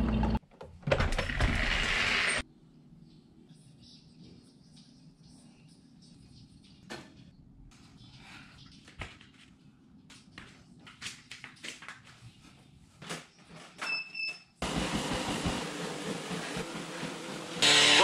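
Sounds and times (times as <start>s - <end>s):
treadmill running: 14.6s - 18.0s.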